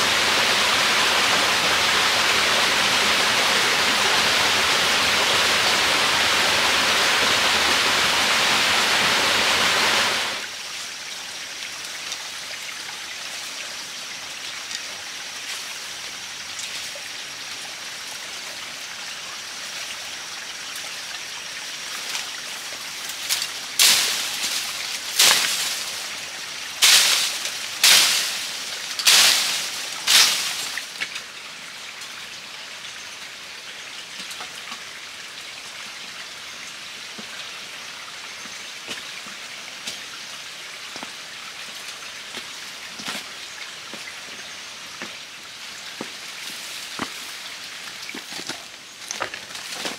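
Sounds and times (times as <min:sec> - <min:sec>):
forest background: 0:00.0 - 0:49.9
running water rushing: 0:00.0 - 0:49.9.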